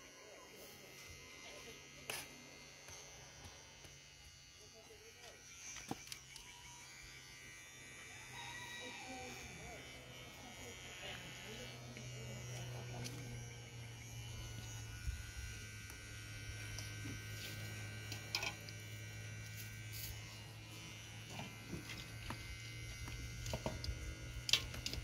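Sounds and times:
electric hair clippers buzzing: 0.0s - 25.0s.

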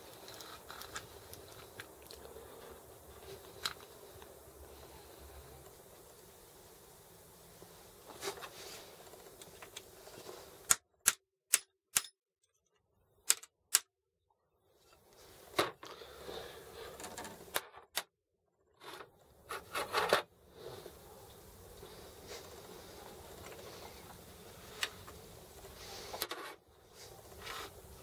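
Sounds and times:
rustling and scraping handling: 0.0s - 10.6s, 18.6s - 28.0s
sharp metallic clicks: 10.7s - 12.2s, 13.2s - 13.9s.

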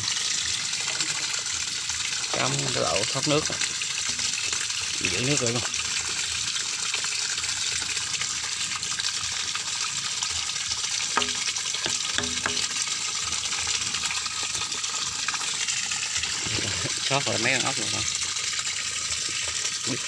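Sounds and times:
water gushing into pond: 0.0s - 20.0s
light knocks on plastic pipe: 11.2s - 12.8s.

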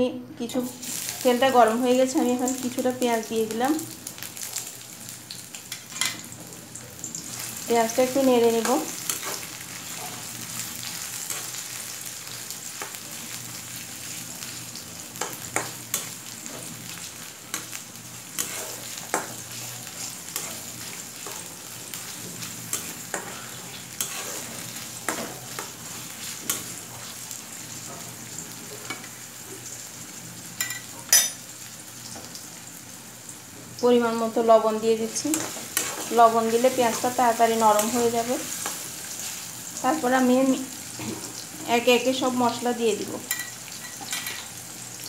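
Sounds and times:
onions sizzling in oil: 0.4s - 45.0s
spatula scraping pan: 8.4s - 10.4s, 17.5s - 28.1s, 35.2s - 39.4s.

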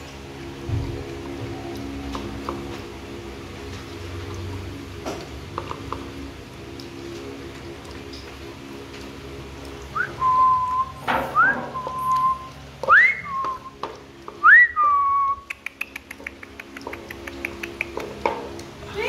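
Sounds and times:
person whistling: 10.0s - 13.8s, 14.4s - 15.6s.

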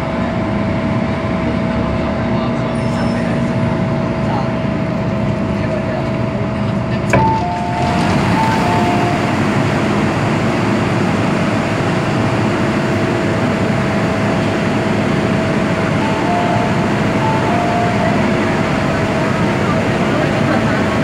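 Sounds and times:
train ventilation hum: 0.0s - 21.0s
two-note electronic tones: 7.2s - 9.6s, 15.9s - 19.5s.

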